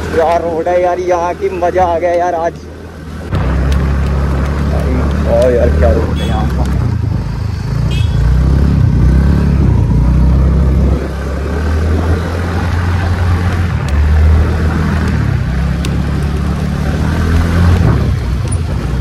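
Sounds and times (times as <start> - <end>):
sharp clicks: 13.4 - 18.8.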